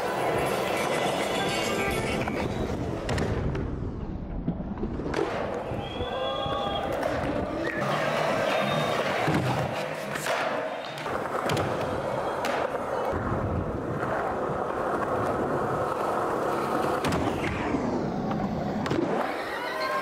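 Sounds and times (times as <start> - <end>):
skateboard clacking: 0.0 - 3.5, 6.8 - 17.6
skateboard wheels rolling on concrete: 0.0 - 20.0.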